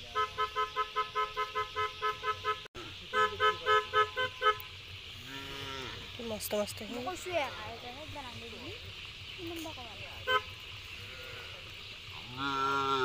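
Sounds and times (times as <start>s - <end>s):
electronic horn beeping rapidly: 0.0s - 4.6s.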